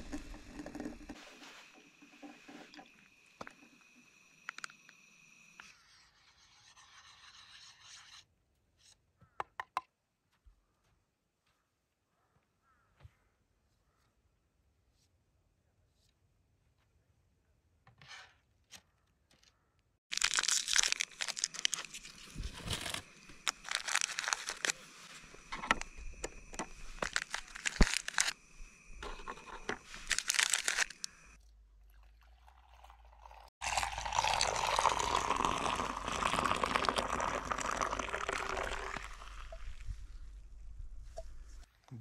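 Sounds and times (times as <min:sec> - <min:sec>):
tea pouring into steel mug: 0:00.0 - 0:05.0, 0:20.1 - 0:40.0
biscuit wrappers crinkling: 0:20.1 - 0:28.4, 0:29.0 - 0:31.2.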